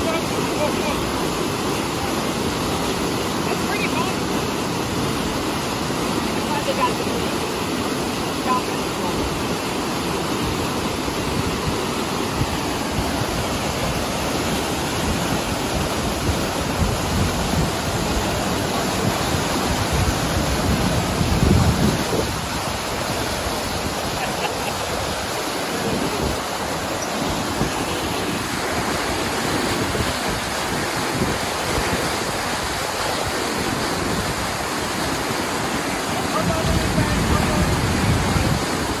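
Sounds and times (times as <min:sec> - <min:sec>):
rushing water on wave ride: 0:00.0 - 0:39.0.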